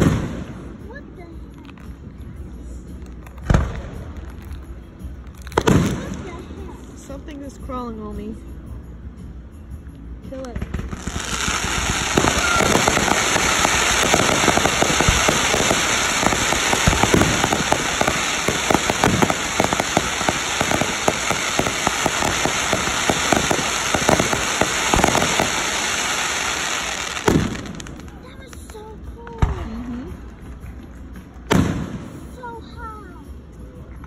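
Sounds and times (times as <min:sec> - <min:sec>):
firework hissing and crackling: 0:10.8 - 0:28.9.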